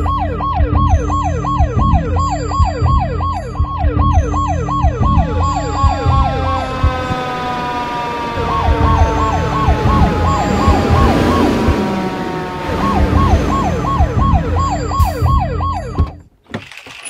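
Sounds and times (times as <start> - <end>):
ambulance siren wailing: 0.0 - 16.2
low rumble: 5.0 - 16.0.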